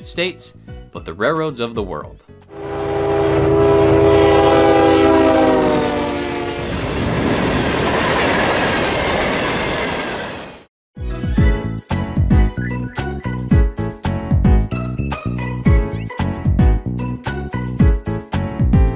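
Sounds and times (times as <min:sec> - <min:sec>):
locomotive air horn: 0:02.5 - 0:06.8.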